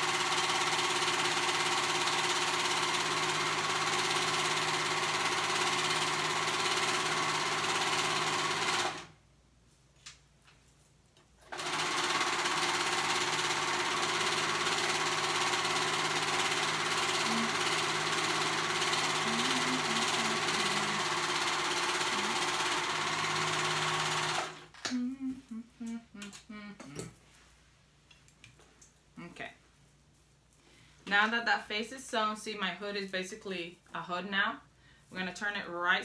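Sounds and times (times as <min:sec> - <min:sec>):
overlock machine stitching: 0:00.0 - 0:09.2, 0:11.4 - 0:24.7.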